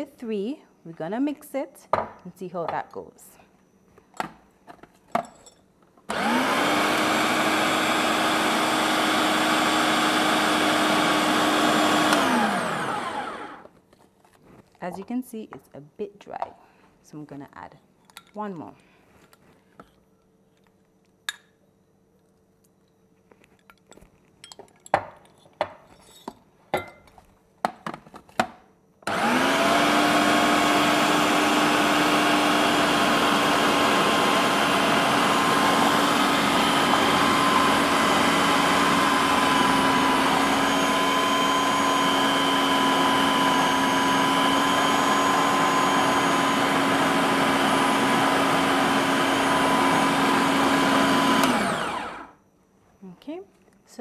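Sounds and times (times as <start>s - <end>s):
food processor motor whining: 6.1s - 13.7s, 29.0s - 52.4s.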